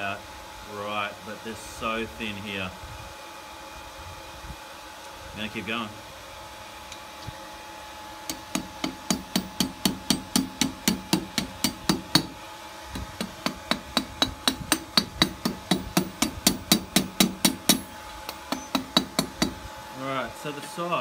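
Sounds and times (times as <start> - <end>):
hammer striking hot steel on anvil: 8.3 - 19.6.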